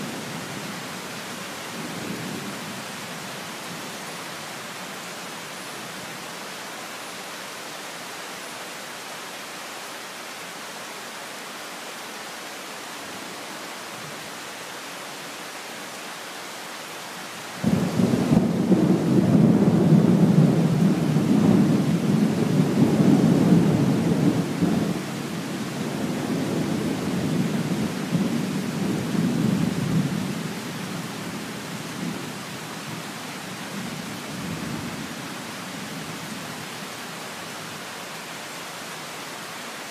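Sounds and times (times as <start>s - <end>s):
rain hissing: 0.0s - 39.9s
thunder rumbling: 17.6s - 25.0s.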